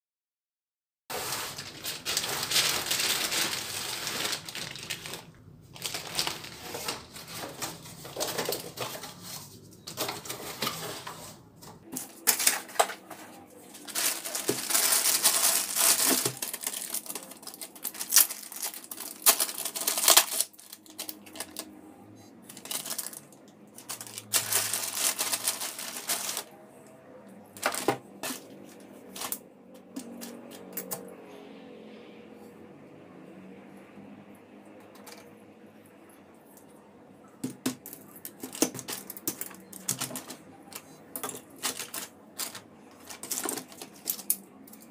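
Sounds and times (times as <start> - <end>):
plastic bag crinkling: 1.1 - 11.2, 11.8 - 21.7, 22.4 - 26.5, 27.6 - 29.4, 37.8 - 44.9.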